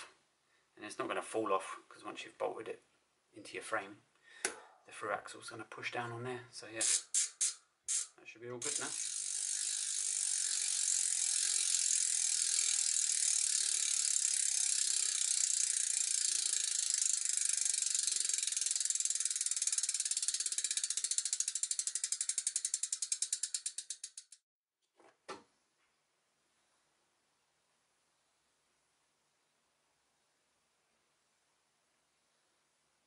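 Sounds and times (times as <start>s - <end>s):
bicycle hub ratcheting clicks: 6.8s - 24.4s.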